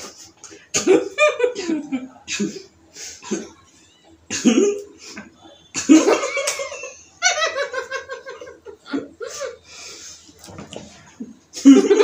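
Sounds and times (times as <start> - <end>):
people laughing: 0.8 - 2.6, 5.7 - 9.7, 11.5 - 12.0.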